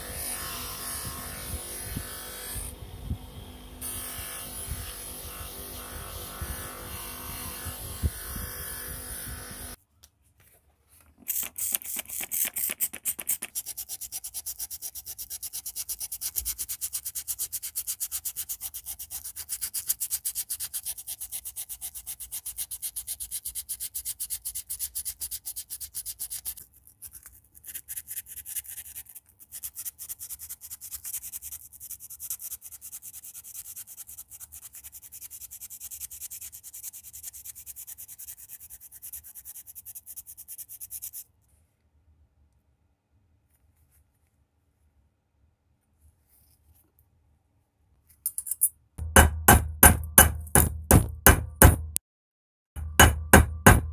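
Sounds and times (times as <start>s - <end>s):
sandpaper scratching on metal: 11.3s - 26.6s, 27.6s - 41.3s.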